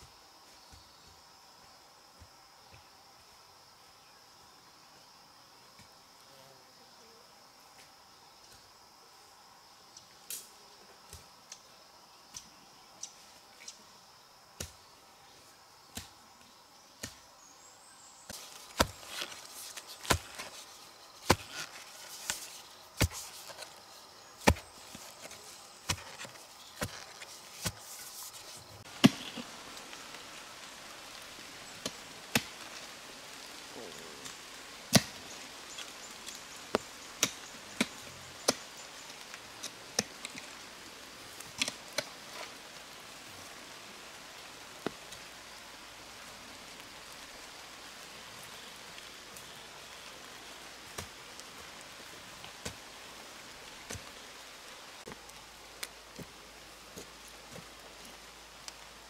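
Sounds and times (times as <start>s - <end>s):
digging tool striking ground: 18.3s - 23.8s, 24.4s - 29.5s.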